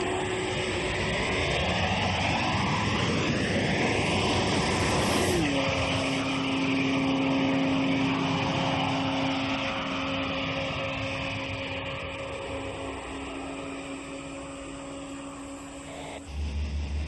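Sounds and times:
vehicle engine drone: 0:00.0 - 0:17.0
wide noise: 0:00.0 - 0:17.0.

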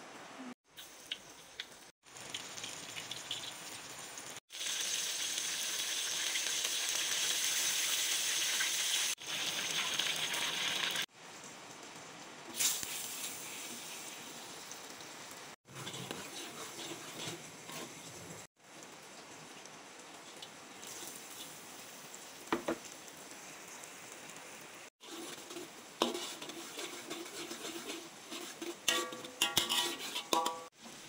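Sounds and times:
chicken deep-frying in oil: 0:00.4 - 0:31.0
butter sizzling in a wok: 0:00.7 - 0:11.1, 0:12.5 - 0:31.0.

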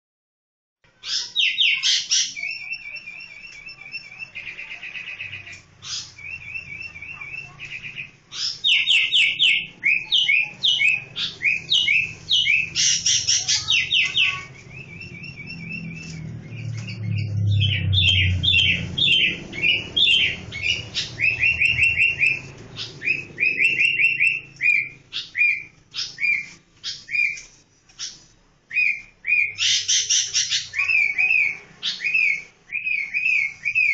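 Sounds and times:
bulbul chirping: 0:01.0 - 0:33.9.

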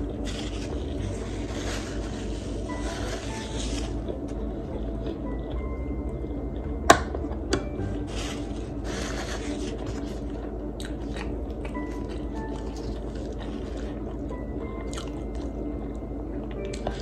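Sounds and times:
chewing with mouth clicks: 0:09.7 - 0:17.0.

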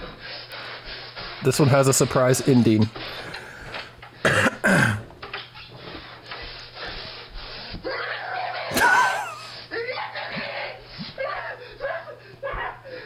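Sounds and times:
boy screaming and yelling: 0:07.9 - 0:09.8.

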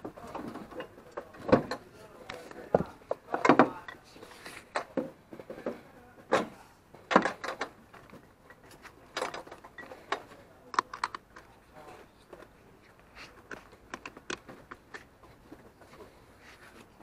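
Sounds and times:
handling clicks and knocks: 0:04.7 - 0:11.6, 0:13.3 - 0:16.1.

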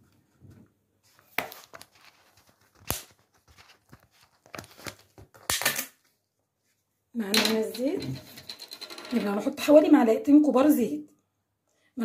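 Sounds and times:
cookware clicks and knocks: 0:07.3 - 0:09.3.

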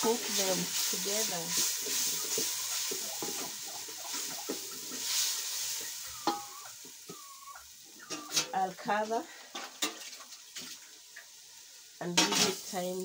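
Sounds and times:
wooden spoon stirring: 0:00.0 - 0:06.5
vegetables sizzling in a pot: 0:00.0 - 0:13.0.

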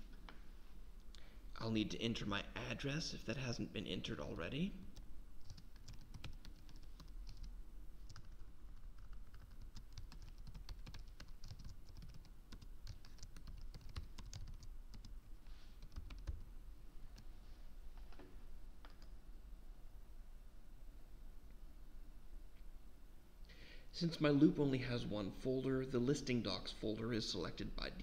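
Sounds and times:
typing on computer keyboard: 0:05.4 - 0:07.5, 0:08.1 - 0:15.1, 0:15.8 - 0:16.4.

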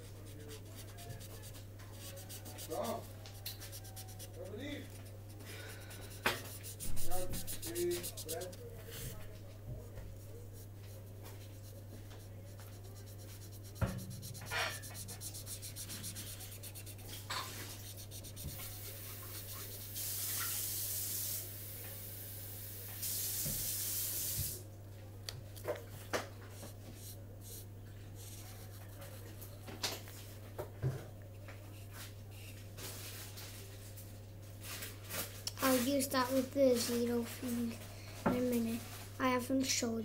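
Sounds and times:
jacket sleeve rubbing on paper: 0:00.0 - 0:09.2, 0:10.3 - 0:20.8
pen scratching on paper: 0:00.1 - 0:05.1, 0:05.8 - 0:09.1, 0:11.6 - 0:20.2.

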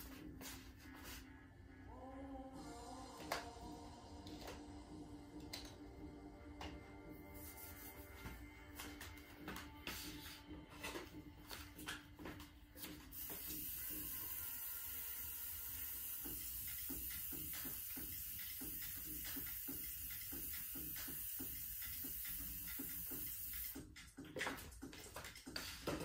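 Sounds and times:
spray bottle hissing: 0:13.0 - 0:23.9.

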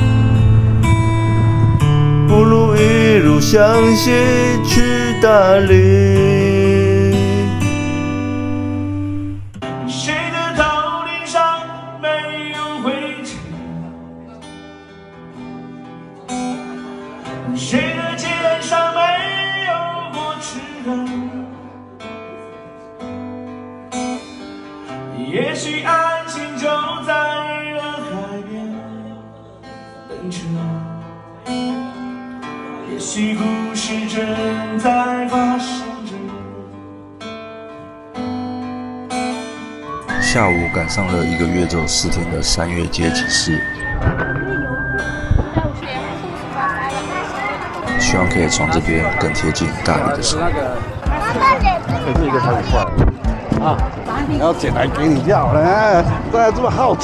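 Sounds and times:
strummed acoustic guitar: 0:00.0 - 0:57.0
person singing: 0:01.8 - 0:13.5.

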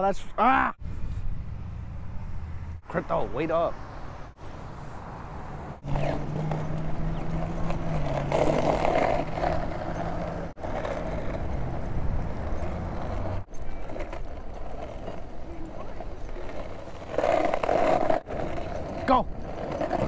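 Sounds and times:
skateboard wheels rolling on asphalt: 0:02.9 - 0:20.0.

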